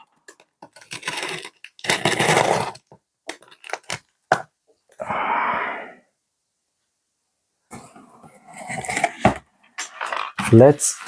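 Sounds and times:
tape clicks and scrapes: 0.3 - 4.1
packing tape tearing: 0.8 - 4.1.

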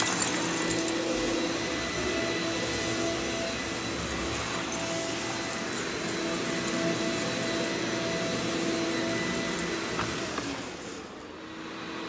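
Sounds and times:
vacuum cleaner motor whine: 0.0 - 12.0.

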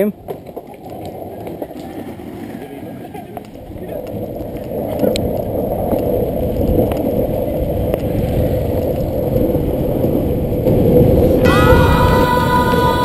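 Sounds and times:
skateboard wheels rolling on asphalt: 0.0 - 13.0
wind on microphone: 0.9 - 13.0.

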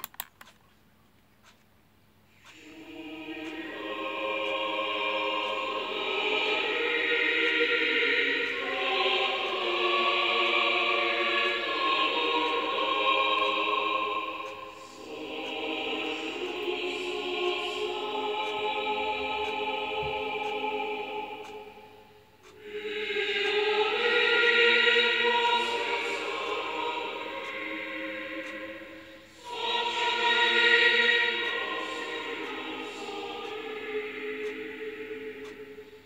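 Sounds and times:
choir singing held chords: 2.3 - 36.0
singers breathing: 28.8 - 29.5.

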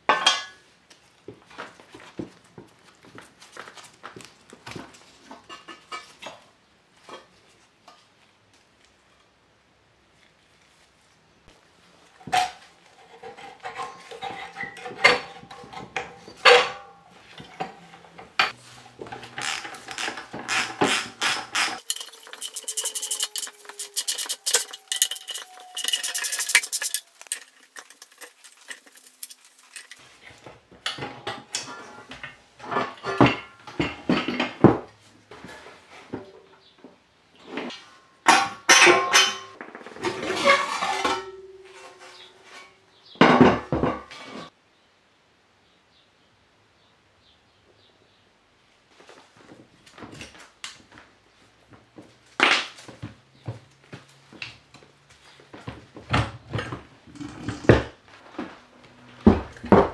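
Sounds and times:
metal tools clinking and knocking: 13.7 - 30.0, 38.3 - 39.6.

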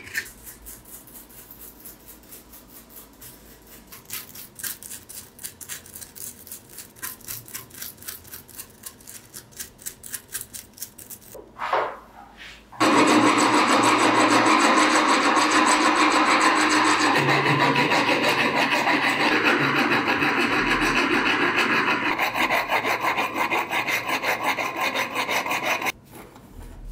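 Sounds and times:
bristle brush scrubbing metal: 12.8 - 26.0
file rasping on metal: 12.8 - 26.0.

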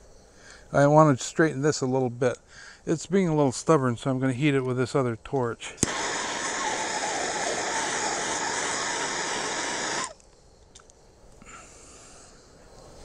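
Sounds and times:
gas torch hissing: 5.8 - 10.3.

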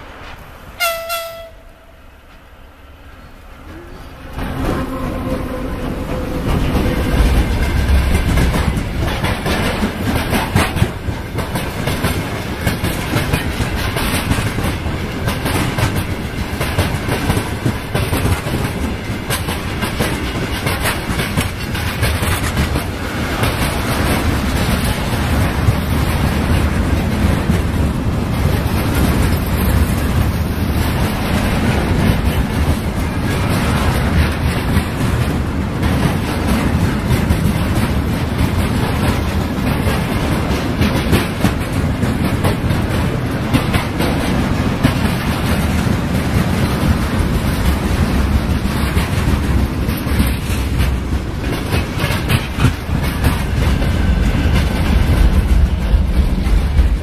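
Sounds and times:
freight train passing: 0.0 - 57.0
locomotive horn blast: 0.8 - 2.1, 3.7 - 7.0
wheels clacking over rail joints: 3.7 - 57.0.

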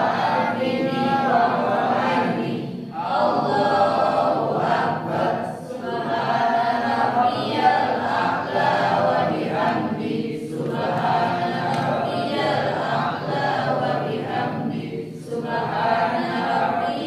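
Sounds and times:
group reciting prayer in unison: 0.0 - 17.0.

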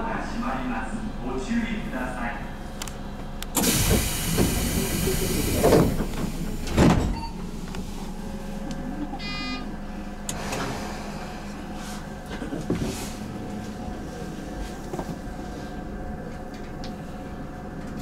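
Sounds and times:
train doors hissing: 3.5 - 7.2, 10.2 - 11.6
short electronic beep: 9.2 - 9.7.

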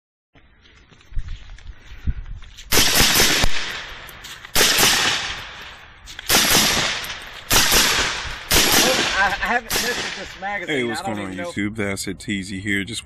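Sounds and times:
suppressed rifle shots: 2.7 - 4.0, 4.6 - 5.7, 6.3 - 10.6.

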